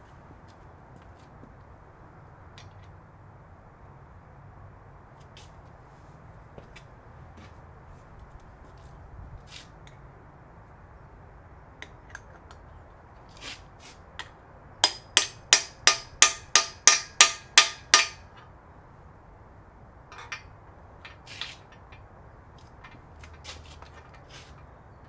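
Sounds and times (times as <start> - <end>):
hammer striking metal socket: 14.8 - 18.4, 20.1 - 20.5.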